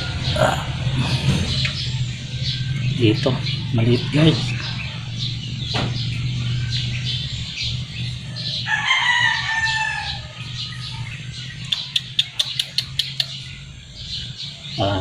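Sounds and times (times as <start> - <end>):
loud animal call: 0.0 - 5.4
steady low hum: 0.0 - 15.0
sharp clicks: 11.7 - 13.4.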